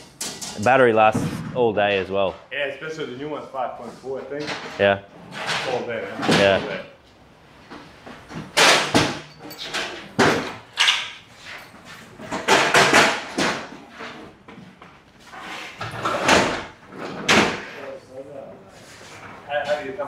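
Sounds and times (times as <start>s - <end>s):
knocks and bangs of building work: 0.0s - 2.4s, 8.1s - 11.2s, 12.2s - 15.0s, 15.8s - 17.8s.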